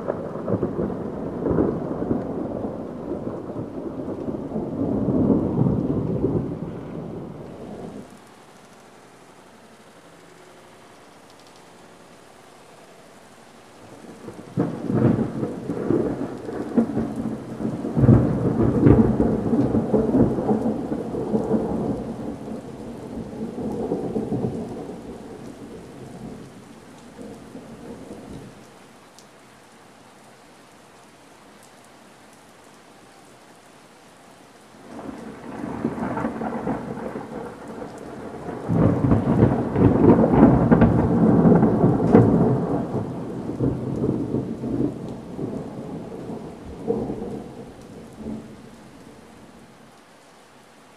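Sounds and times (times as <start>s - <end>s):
thunder rumbling with crackles: 0.0s - 8.8s, 13.8s - 28.8s, 34.8s - 49.8s
steady rain: 0.0s - 50.9s.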